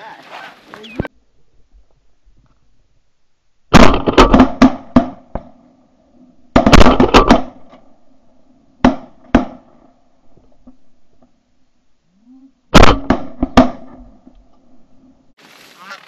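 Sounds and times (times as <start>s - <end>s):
shotgun shots: 3.7s - 5.4s, 6.6s - 7.6s, 12.7s - 14.0s.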